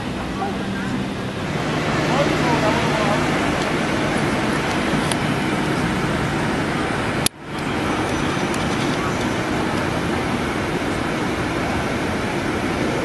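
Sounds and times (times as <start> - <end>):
murmur of voices: 0.0 - 13.0
traffic: 0.0 - 13.0.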